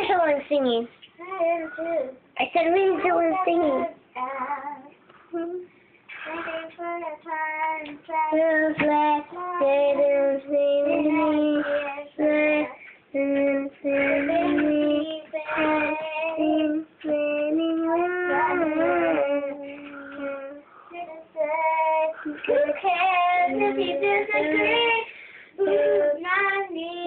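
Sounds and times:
child singing unaccompanied: 0.0s - 27.0s.

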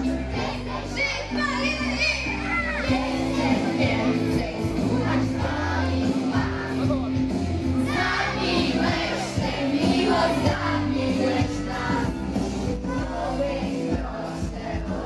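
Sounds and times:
amplified backing music with bass: 0.0s - 15.0s
women singing into microphones: 8.6s - 12.2s, 13.2s - 15.0s.

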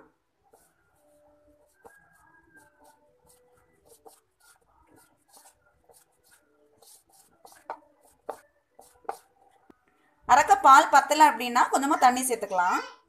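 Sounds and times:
hand rubbing flour in a bowl: 0.4s - 9.6s.

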